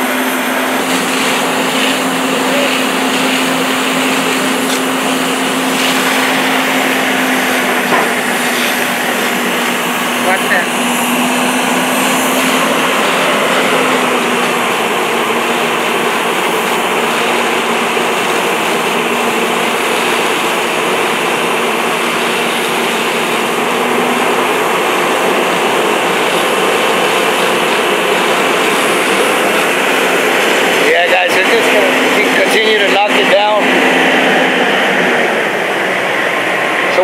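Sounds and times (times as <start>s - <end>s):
fire engines and pumps roaring: 0.0s - 37.0s
rush of hose streams: 0.0s - 37.0s.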